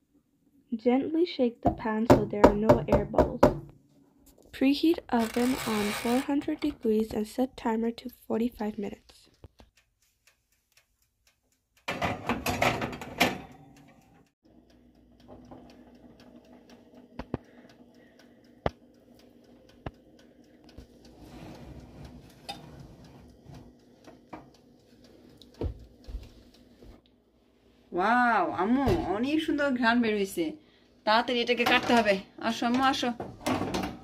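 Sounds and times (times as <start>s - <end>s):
metal pan scraping on oven rack: 5.1s - 6.4s, 21.2s - 23.7s
oven hum: 11.9s - 30.1s.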